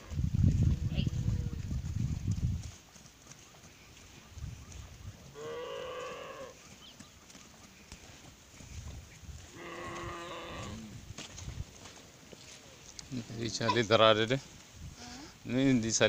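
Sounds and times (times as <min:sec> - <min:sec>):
cattle mooing: 0:05.3 - 0:06.6, 0:09.6 - 0:10.9.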